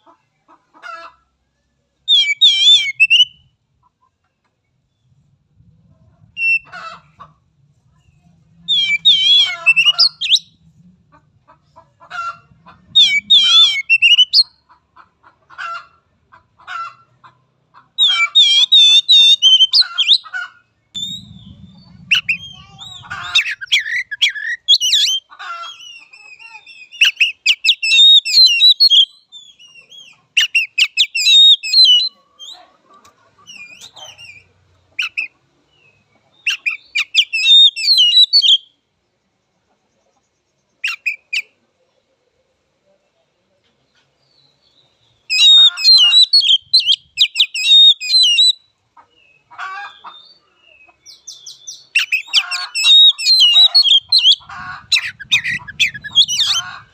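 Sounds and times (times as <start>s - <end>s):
bird singing whistled trills: 2.1s - 3.4s, 8.7s - 10.6s, 13.0s - 14.6s, 18.0s - 20.2s, 21.0s - 25.2s, 26.3s - 32.2s, 36.4s - 38.7s, 45.3s - 48.7s, 51.1s - 54.4s
faint low rumble: 4.6s - 14.3s, 20.8s - 24.3s.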